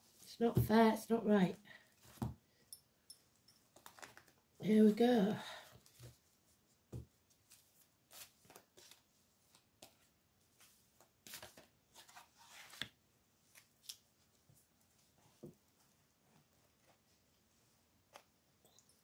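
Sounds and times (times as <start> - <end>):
cards being shuffled: 3.7 - 4.4, 11.2 - 14.0.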